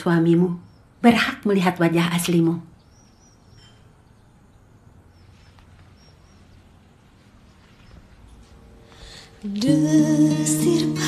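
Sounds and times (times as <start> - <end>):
background hiss: 0.0 - 11.0
music with low notes: 7.1 - 11.0.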